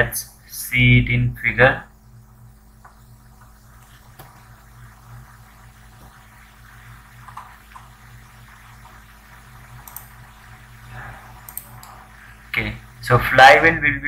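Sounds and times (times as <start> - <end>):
low electrical hum and hiss: 0.0 - 14.0
computer mouse clicks: 9.8 - 10.2, 11.4 - 12.0.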